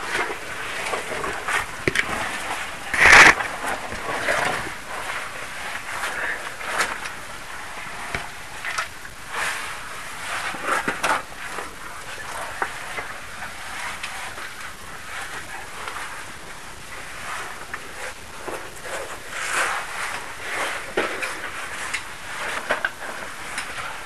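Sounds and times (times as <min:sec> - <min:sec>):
gear scraping against rock: 0:00.1 - 0:07.0.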